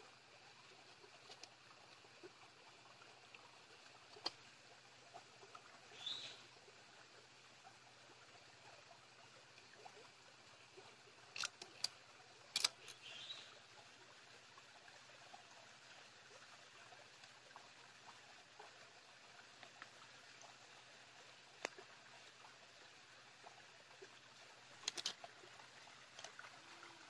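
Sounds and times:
stream trickling: 0:00.0 - 0:27.0
sharp clicks of handling: 0:11.4 - 0:11.9, 0:12.6 - 0:13.0, 0:24.8 - 0:25.2.

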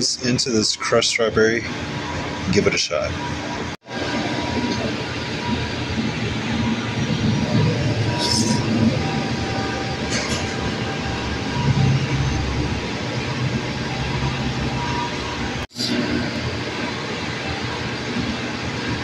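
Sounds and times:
restaurant background rumble: 0:00.0 - 0:19.0.

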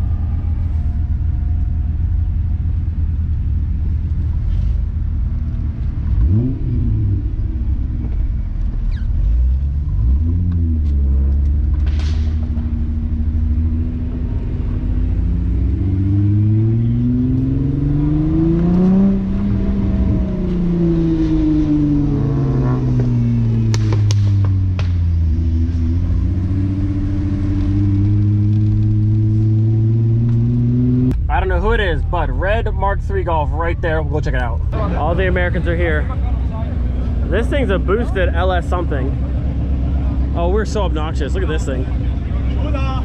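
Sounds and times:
car engine rumble: 0:00.0 - 0:43.0
engine revving: 0:06.0 - 0:08.3, 0:09.1 - 0:32.4.

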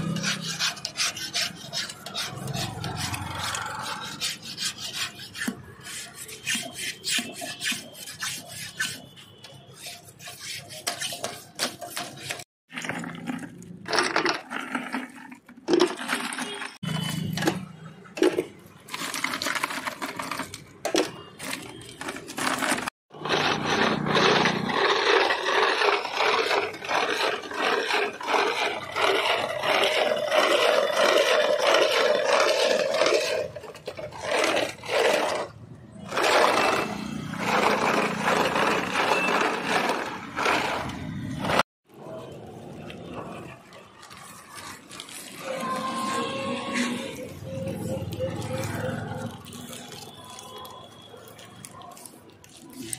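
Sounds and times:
metal grinding against ice: 0:00.0 - 0:52.9
ice cubes in plastic bucket: 0:11.7 - 0:52.9.

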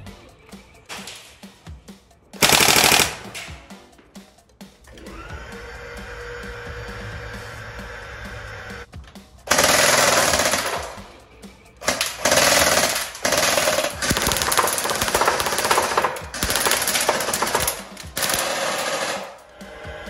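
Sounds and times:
electric airsoft gun firing: 0:02.4 - 0:03.6, 0:09.5 - 0:11.1, 0:11.8 - 0:19.5.

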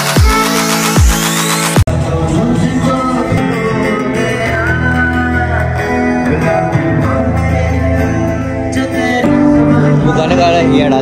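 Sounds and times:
guitar: 0:00.0 - 0:11.0
person singing: 0:00.0 - 0:11.0.

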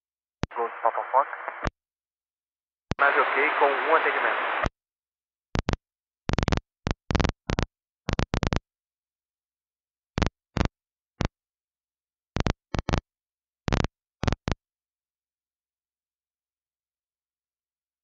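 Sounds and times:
radio squelch bursts: 0:00.5 - 0:01.7, 0:03.0 - 0:04.7.

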